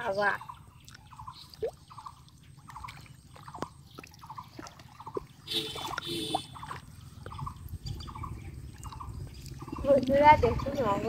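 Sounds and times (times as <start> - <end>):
water trickling and splashing: 0.0 - 11.0.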